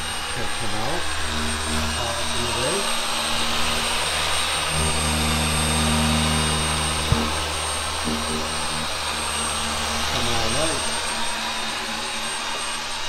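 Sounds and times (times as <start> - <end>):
car polisher running: 0.0 - 13.0.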